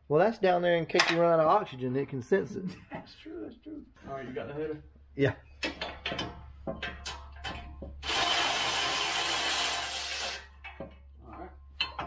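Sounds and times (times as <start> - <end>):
light metal clicks and knocks: 5.6 - 8.0, 10.6 - 12.0
electric ratchet running: 8.0 - 10.5.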